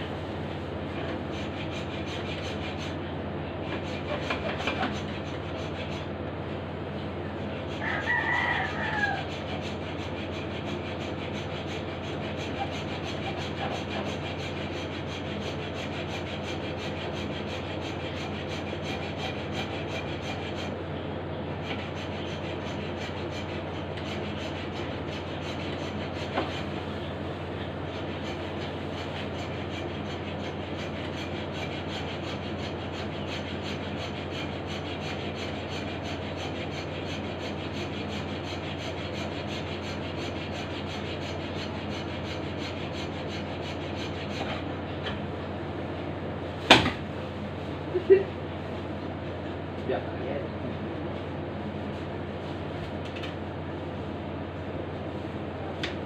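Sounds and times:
saw rasping through dried fish: 0:00.0 - 0:06.2, 0:07.3 - 0:44.9.

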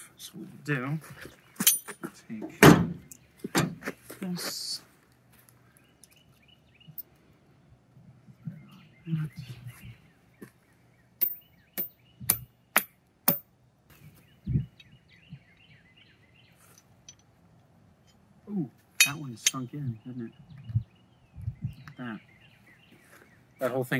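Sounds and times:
birds chirping: 0:00.0 - 0:23.9
dull thump: 0:02.6 - 0:03.8
sledgehammer blows on metal: 0:11.2 - 0:13.5.

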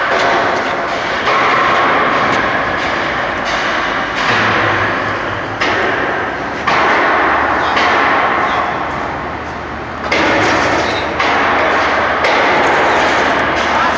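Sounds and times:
construction machinery rushing: 0:00.0 - 0:13.9.

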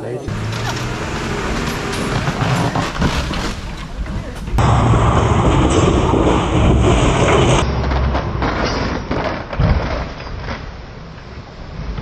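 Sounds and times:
outdoor noise: 0:00.0 - 0:12.0
truck engine rumbling: 0:00.0 - 0:12.0.

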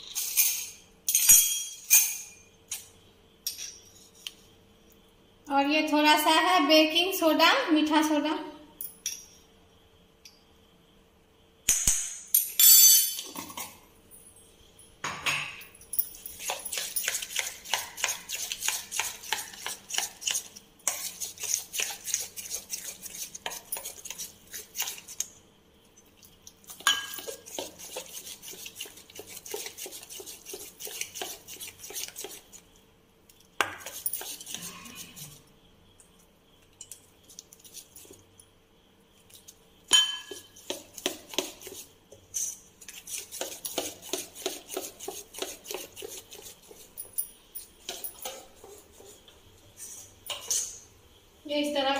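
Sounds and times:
spoon beating batter in metal bowl: 0:16.3 - 0:25.4, 0:26.2 - 0:32.8, 0:33.6 - 0:35.4, 0:39.3 - 0:49.4.

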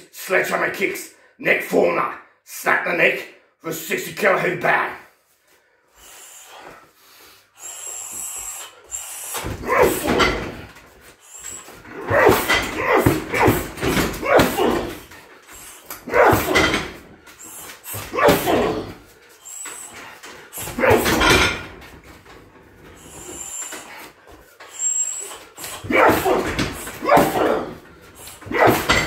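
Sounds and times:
man grunting: 0:09.4 - 0:10.7, 0:11.9 - 0:15.2, 0:16.0 - 0:17.0, 0:17.8 - 0:19.1, 0:20.6 - 0:21.7, 0:25.8 - 0:29.0.

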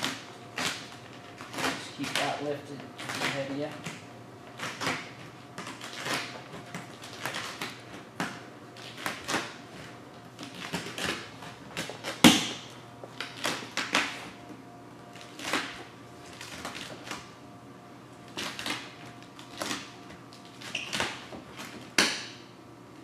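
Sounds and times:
vinyl sheet crinkling: 0:00.0 - 0:03.9, 0:04.5 - 0:08.1
card scraping vinyl film: 0:00.0 - 0:12.4.

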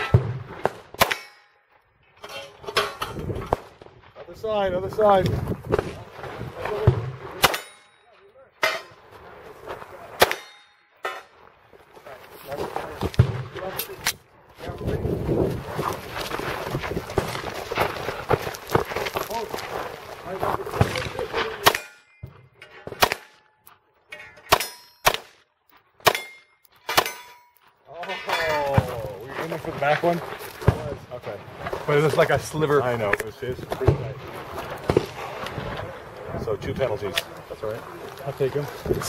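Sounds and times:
steel targets clanging: 0:01.0 - 0:03.3, 0:07.4 - 0:09.0, 0:10.2 - 0:11.4, 0:21.6 - 0:23.4, 0:24.1 - 0:25.2, 0:26.1 - 0:28.8
handgun shots: 0:23.0 - 0:23.4, 0:24.5 - 0:25.4, 0:26.0 - 0:27.4
steel plates ringing: 0:26.1 - 0:28.7.

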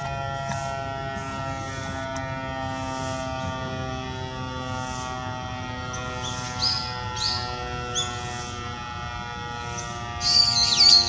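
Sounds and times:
electric siren winding down: 0:00.0 - 0:11.0
birds chirping: 0:05.8 - 0:08.8, 0:09.4 - 0:11.0.

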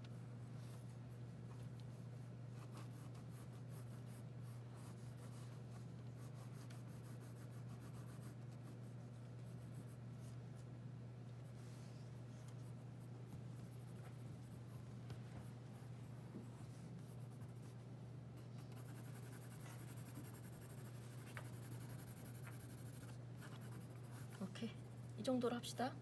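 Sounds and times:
steady low hum: 0:00.0 - 0:26.0
pencil scratching on paper: 0:02.6 - 0:10.4, 0:18.6 - 0:25.1.

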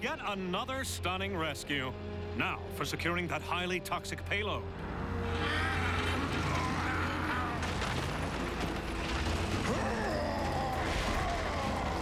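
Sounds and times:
metal creaking and groaning: 0:04.8 - 0:12.0.

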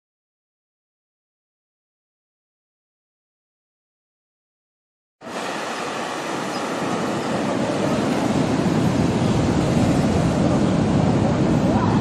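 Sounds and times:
ocean surf breaking on beach: 0:05.2 - 0:12.0.

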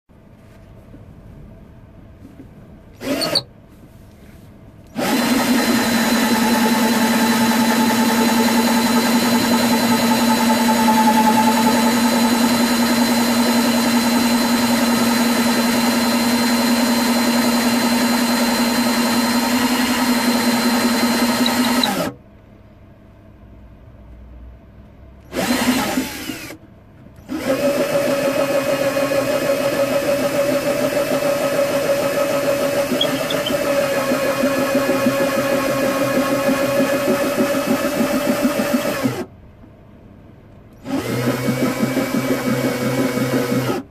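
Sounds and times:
cordless drill boring into wood: 0:03.0 - 0:03.5, 0:05.0 - 0:22.2, 0:25.3 - 0:26.6, 0:27.3 - 0:39.3, 0:40.8 - 0:43.8.

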